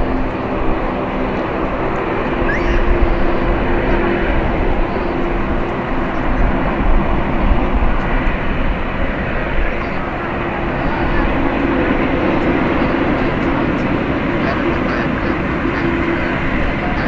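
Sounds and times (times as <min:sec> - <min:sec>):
jet engines low rumble: 0:00.0 - 0:17.0.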